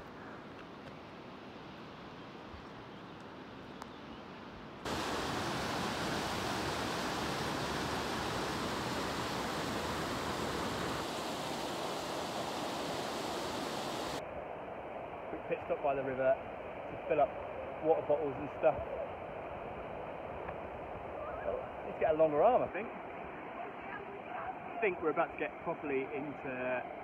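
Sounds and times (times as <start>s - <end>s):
outdoor hiss: 4.8s - 26.9s
river rushing over rocks: 4.9s - 14.2s.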